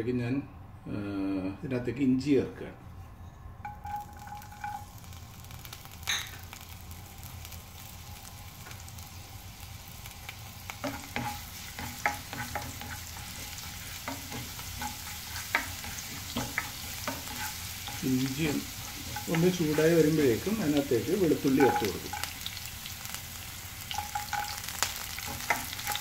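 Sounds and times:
ginger sizzling in oil: 3.7 - 26.0
spatula scraping wok: 10.6 - 23.2, 23.8 - 26.0.

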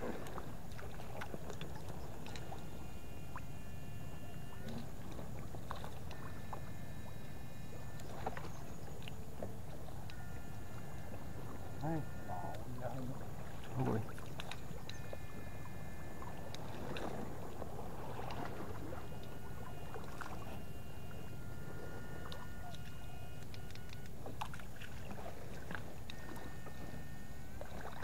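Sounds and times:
water sloshing: 0.0 - 28.0
high electronic whine: 18.7 - 24.1, 26.1 - 28.0.

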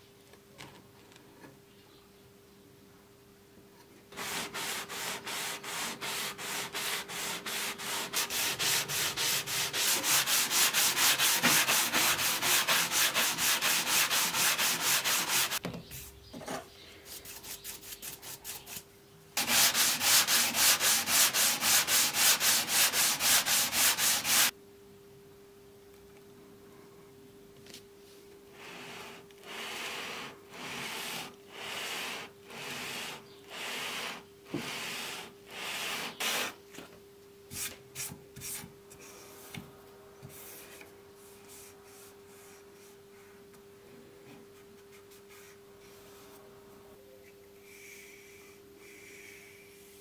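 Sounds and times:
sanding sponge rubbing on wood: 4.2 - 15.6, 19.4 - 24.5, 28.7 - 36.6.

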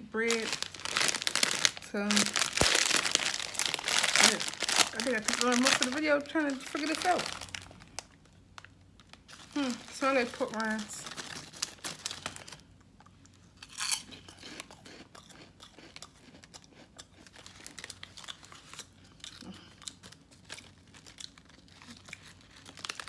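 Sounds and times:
crunchy snack bitten and chewed: 0.3 - 6.0, 11.0 - 23.0.

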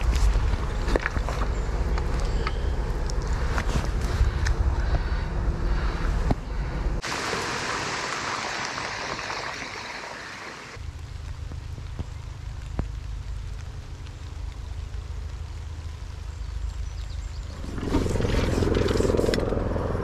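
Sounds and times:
rain falling on river: 7.0 - 17.8.

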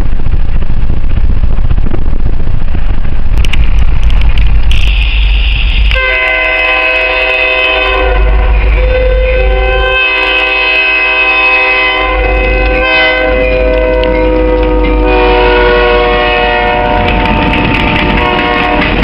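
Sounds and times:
low engine rumble: 0.0 - 19.0
rushing of passing train cars: 0.0 - 19.0
locomotive air horn blasts: 5.9 - 19.0.

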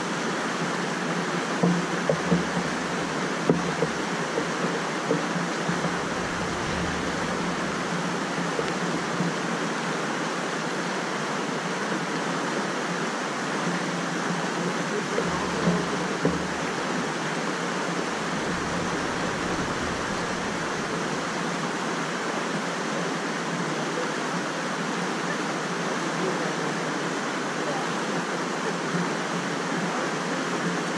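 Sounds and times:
rushing flood water: 0.0 - 30.9
brief knocks: 1.6 - 4.0, 5.6 - 8.8, 15.2 - 16.9, 18.0 - 21.6.

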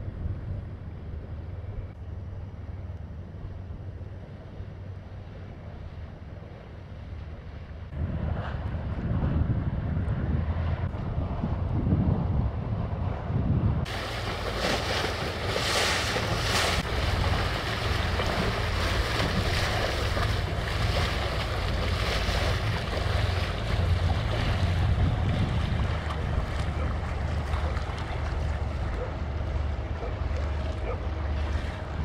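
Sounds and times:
wind buffeting microphone: 7.2 - 32.0
bow wave washing on bank: 13.8 - 32.0
ship diesel engine rumbling: 13.9 - 32.0.

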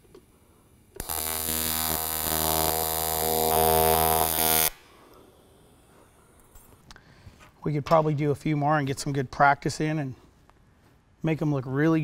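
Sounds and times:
welding arc crackle: 1.0 - 4.8
welding arc buzzing: 1.0 - 4.9.

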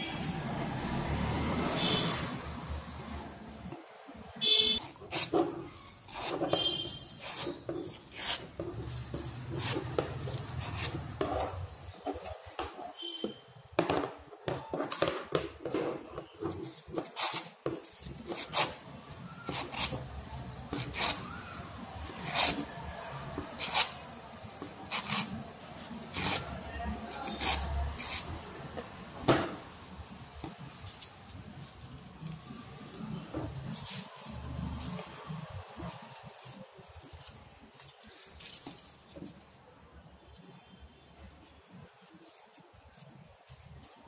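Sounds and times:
paper crackling and rustling: 16.0 - 29.1, 30.0 - 39.8.

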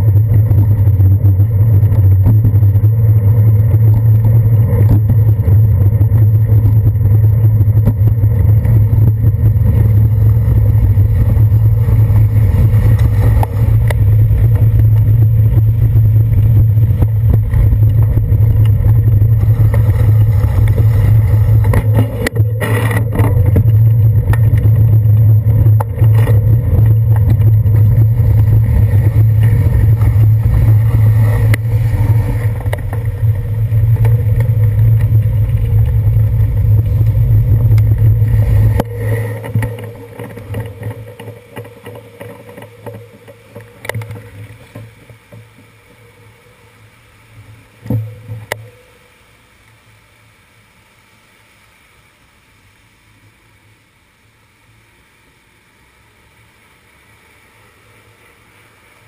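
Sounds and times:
bicycle road rumble and wind: 0.0 - 59.0.

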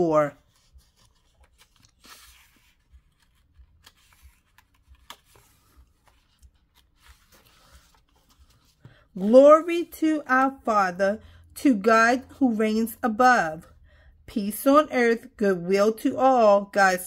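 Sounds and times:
paper rustling: 0.2 - 9.2
page turning: 0.4 - 9.1.

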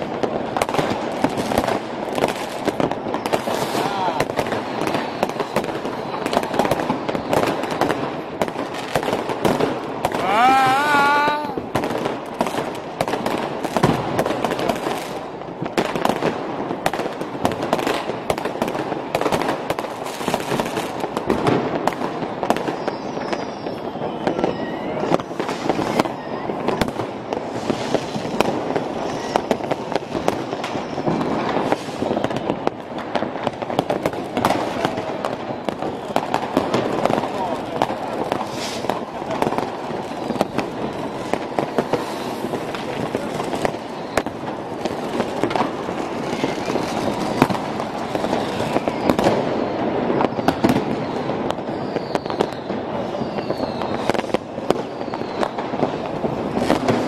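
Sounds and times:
fireworks and firecrackers banging: 0.0 - 57.0
faint gliding whistles: 22.7 - 25.2, 48.2 - 55.7.

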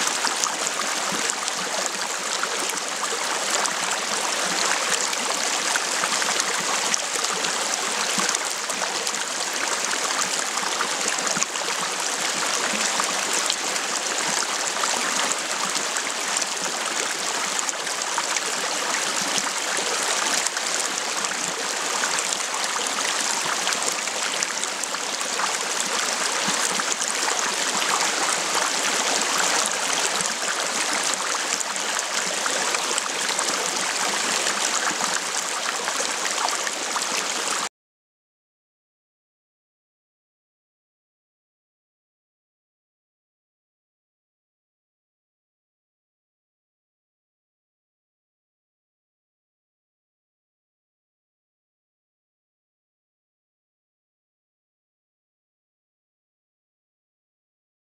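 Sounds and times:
stream running over rocks: 0.0 - 37.7.

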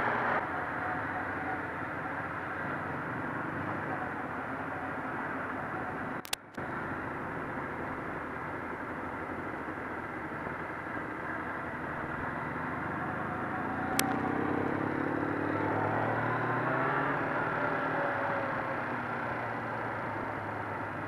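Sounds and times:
motorcycle engine running: 0.0 - 21.0
road noise: 0.0 - 21.0
click: 6.2 - 6.5.

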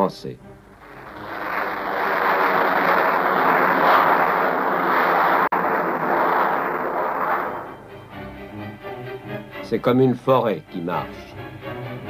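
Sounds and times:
aircraft engine droning: 0.6 - 9.6.

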